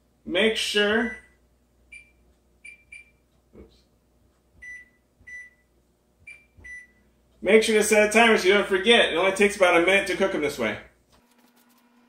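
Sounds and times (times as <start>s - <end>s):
oven keypad beeps: 1.0s - 3.2s, 4.6s - 5.7s, 6.3s - 7.1s.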